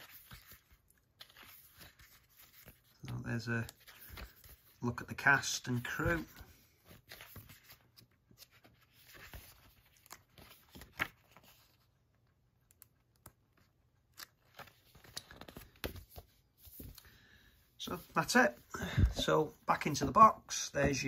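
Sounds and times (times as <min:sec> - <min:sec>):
paper pages turning: 0:00.0 - 0:17.1.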